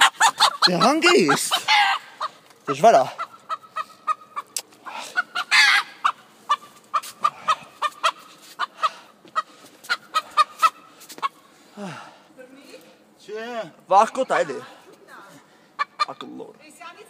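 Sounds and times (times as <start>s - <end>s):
rooster harsh call: 0.0s - 2.3s
rooster clucking: 0.0s - 11.4s, 15.8s - 16.3s.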